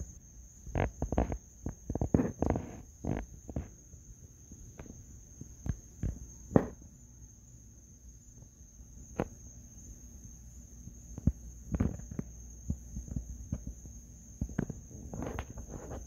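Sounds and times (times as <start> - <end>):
insects trilling: 0.0 - 16.0
knocks and thumps: 6.0 - 6.8.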